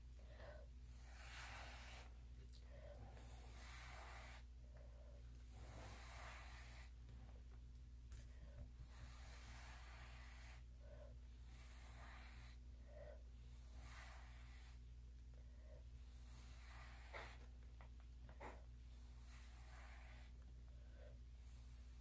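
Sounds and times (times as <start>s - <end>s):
breath puffs: 16.0s - 17.6s.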